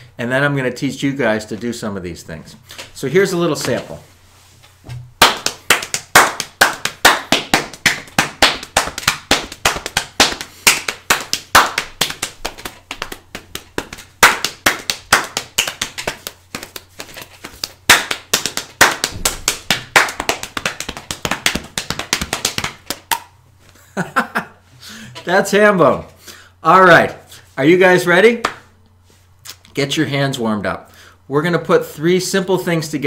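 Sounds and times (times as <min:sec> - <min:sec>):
hands slapping body percussion: 0:05.2 - 0:23.4, 0:28.4 - 0:28.7.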